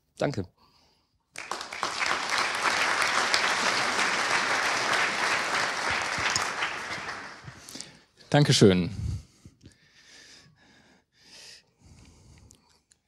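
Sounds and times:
audience applauding: 1.4s - 7.9s.

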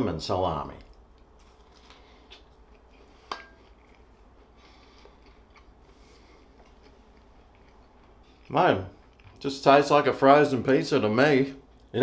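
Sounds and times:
crunchy biting and chewing: 1.4s - 9.4s.

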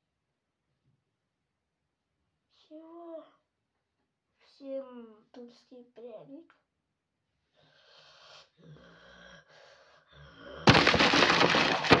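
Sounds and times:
loud crackling crumpling: 10.7s - 12.0s.

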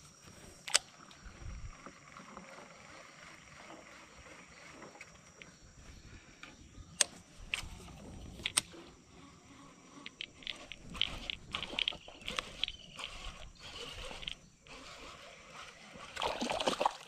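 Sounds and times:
quick light reel clicks: 0.6s - 1.3s, 6.4s - 15.2s
fishing reel clicks: 6.4s - 16.4s.

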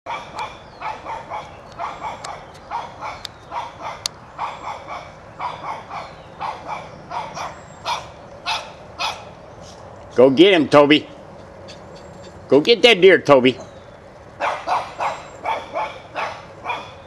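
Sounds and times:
small dog yapping: 0.1s - 9.3s, 14.4s - 17.0s.

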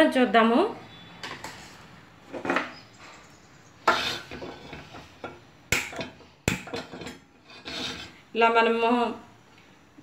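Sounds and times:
short scrape: 7.5s - 8.2s.

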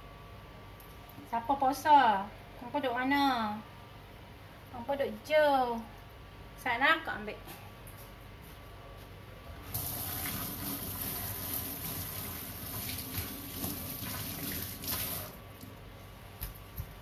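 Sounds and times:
water running from tap: 9.7s - 15.7s.

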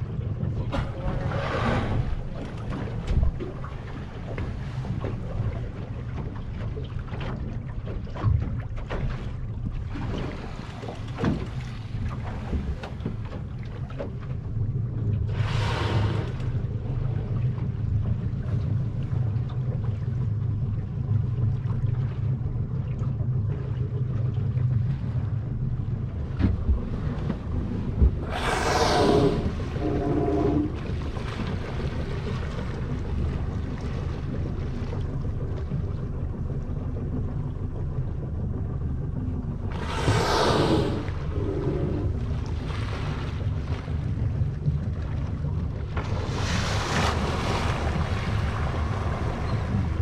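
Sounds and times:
steady low rumble: 0.0s - 50.0s
whale exhaling through blowhole: 0.9s - 2.4s, 15.3s - 16.7s, 27.9s - 30.9s, 39.7s - 43.0s.

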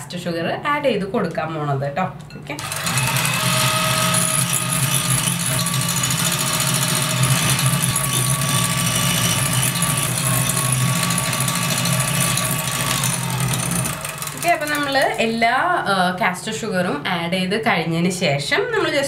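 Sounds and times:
electric hand mixer whisking: 2.6s - 15.4s.

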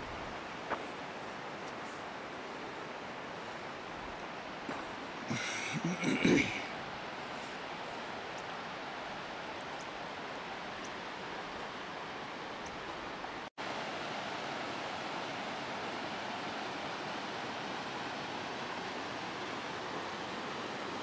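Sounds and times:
water rushing in a canyon: 0.0s - 21.0s.

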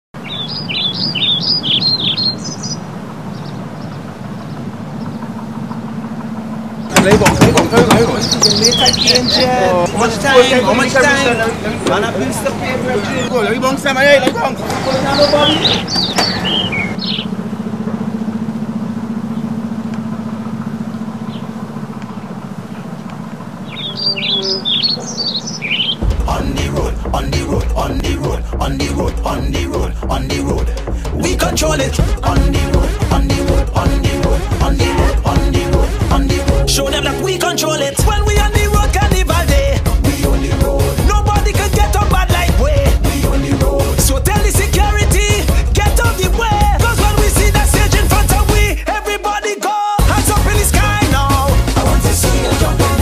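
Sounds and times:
bird chirping: 0.2s - 17.7s, 20.7s - 27.0s
birds chirping: 0.2s - 48.7s
minibus engine idling: 0.2s - 53.0s
steady low hum: 2.4s - 9.0s, 15.9s - 37.4s.

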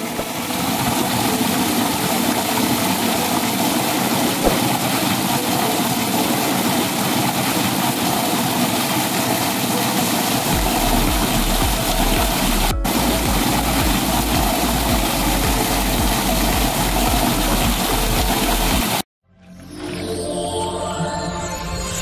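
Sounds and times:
water jet splashing into channel: 0.0s - 19.0s
low hum: 10.5s - 18.7s.

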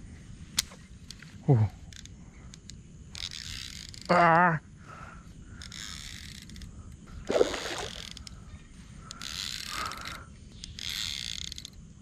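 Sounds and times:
fishing reel drag buzzing: 3.1s - 4.1s, 5.6s - 8.4s, 9.1s - 11.8s
water splash: 7.3s - 8.1s.

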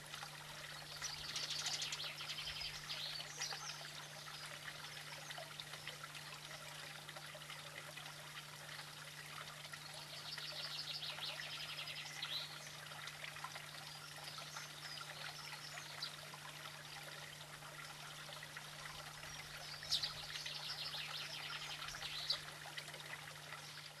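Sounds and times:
high trilling birdsong: 0.8s - 4.5s, 19.3s - 22.5s.

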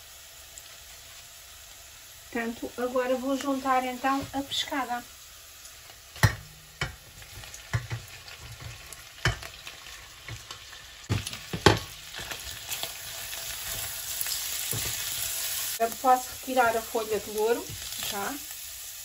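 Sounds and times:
onions sizzling in pan: 0.0s - 19.0s
spatula knocking on dish and pan: 6.2s - 7.1s, 7.7s - 9.5s, 11.1s - 11.9s.

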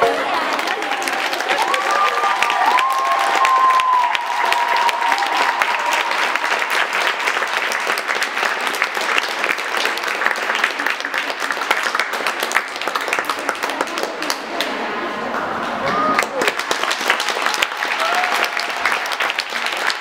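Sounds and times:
audience clapping: 0.0s - 20.0s.

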